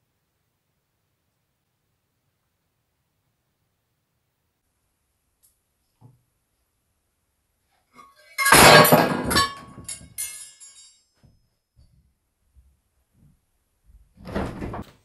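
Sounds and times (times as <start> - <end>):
metal mug and spoons clattering: 8.0 - 11.0.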